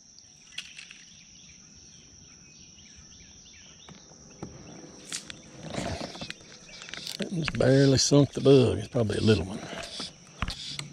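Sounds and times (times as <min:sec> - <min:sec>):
insects droning: 0:00.0 - 0:10.9
bird chirps: 0:00.2 - 0:10.9.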